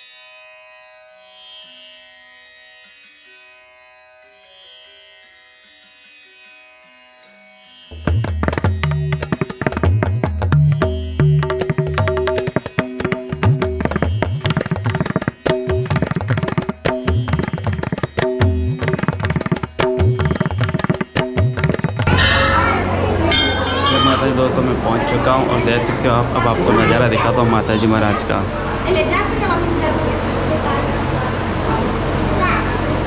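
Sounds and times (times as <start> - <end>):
tabla drumming: 7.9 - 25.8
plucked strings: 7.9 - 27.3
sustained notes: 16.8 - 32.3.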